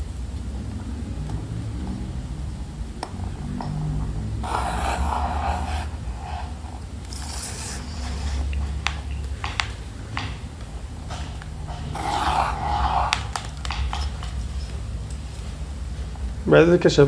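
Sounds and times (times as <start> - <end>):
steady low hum: 0.0 - 17.0
pencil scratching on paper: 4.4 - 9.0, 11.8 - 14.1.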